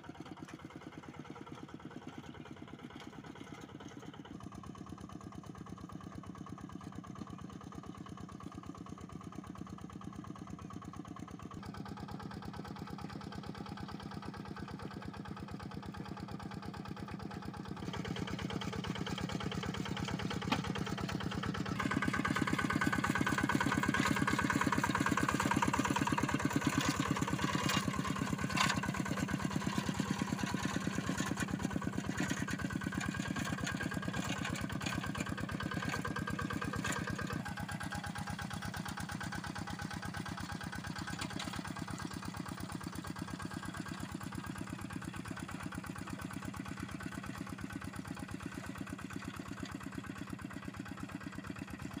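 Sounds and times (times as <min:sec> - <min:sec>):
diesel engine chugging: 0:13.5 - 0:52.0.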